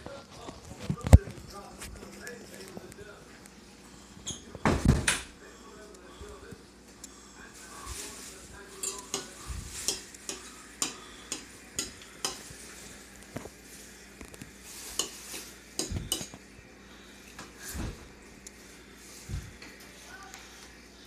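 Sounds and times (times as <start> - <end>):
fork clinking against bowl: 8.8 - 12.5.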